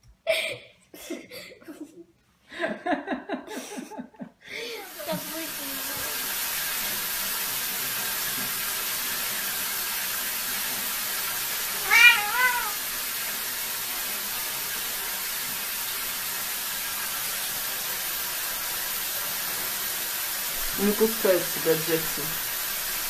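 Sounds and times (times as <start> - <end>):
steady hiss: 4.7 - 9.1
cat meowing: 11.7 - 12.8.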